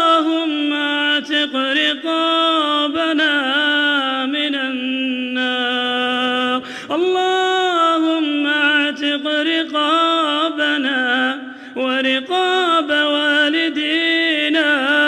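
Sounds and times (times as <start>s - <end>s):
man chanting melodically: 0.0s - 15.0s.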